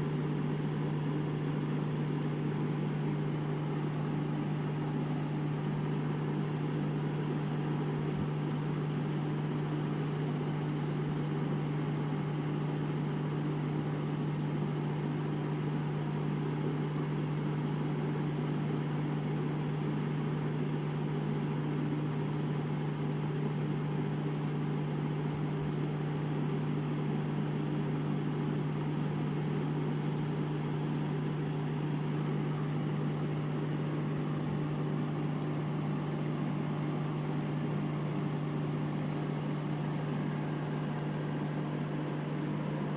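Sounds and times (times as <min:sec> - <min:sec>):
air pump humming: 0:00.0 - 0:42.9.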